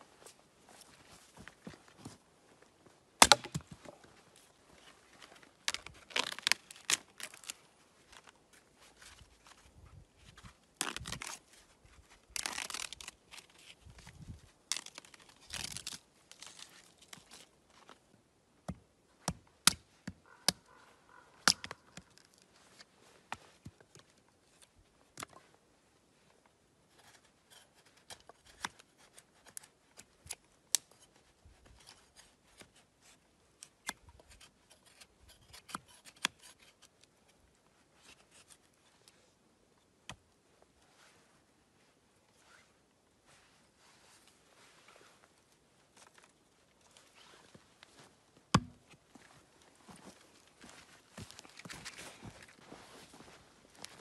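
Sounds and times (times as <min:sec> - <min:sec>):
bark being torn and peeled: 0:03.2 - 0:03.6, 0:05.6 - 0:07.6, 0:10.8 - 0:11.4, 0:12.3 - 0:13.6, 0:14.7 - 0:17.5, 0:21.4 - 0:22.4.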